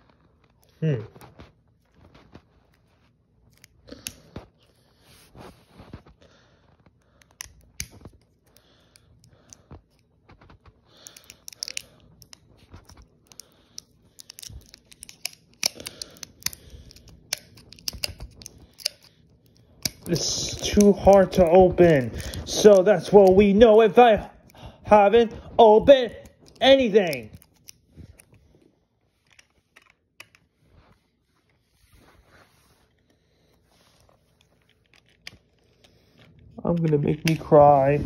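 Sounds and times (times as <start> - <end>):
plastic packaging crinkling and snapping: 5.7 - 23.8, 25.4 - 30.5, 34.1 - 37.9.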